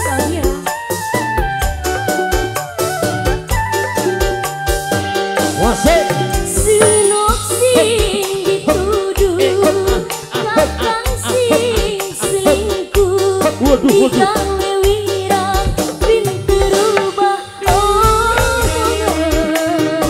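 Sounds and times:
bass: 0:00.0 - 0:20.0
electronic keyboard organ: 0:00.1 - 0:17.8
steady drum beat: 0:05.4 - 0:20.0
woman singing ornamented melody: 0:06.5 - 0:20.0.

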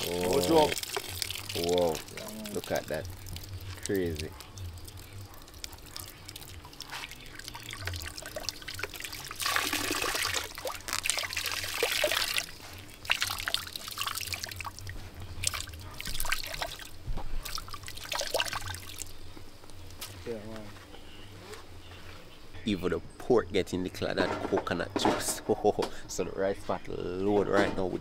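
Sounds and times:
liquid pouring into pot: 0:00.0 - 0:19.2.

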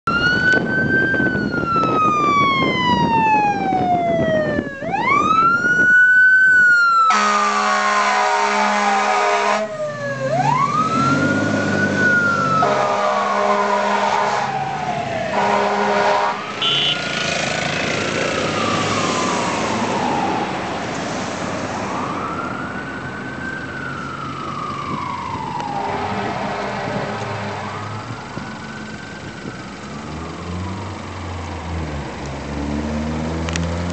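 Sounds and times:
fire engine siren wailing: 0:00.0 - 0:33.9
fire engine horn blasts: 0:07.1 - 0:09.7, 0:12.5 - 0:14.6, 0:15.3 - 0:17.1, 0:25.9 - 0:28.1.

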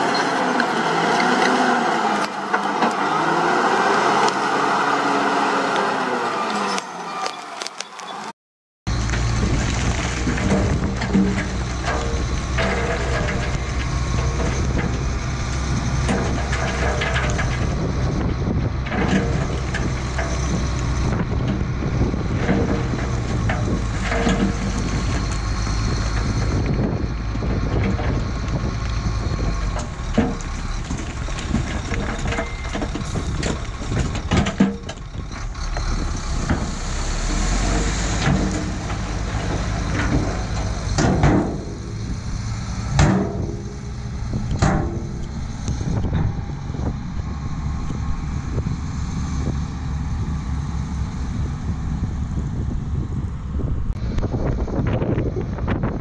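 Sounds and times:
diesel truck engine running: 0:08.9 - 0:56.0
stones tumbling onto pile: 0:09.0 - 0:17.8, 0:29.8 - 0:35.0.

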